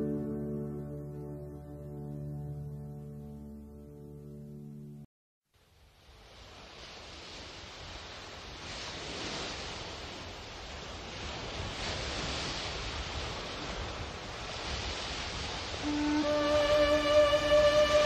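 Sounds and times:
sustained music notes: 0:00.0 - 0:05.0, 0:15.8 - 0:18.0
ocean waves washing in: 0:05.6 - 0:18.0.

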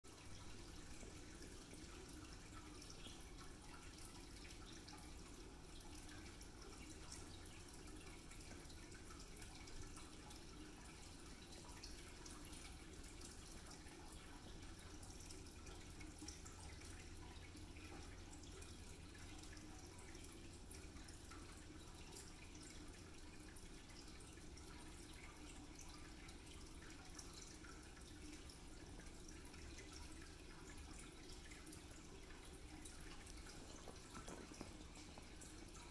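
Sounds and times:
low room hum: 0:00.1 - 0:35.9
cat licking: 0:32.6 - 0:35.8.

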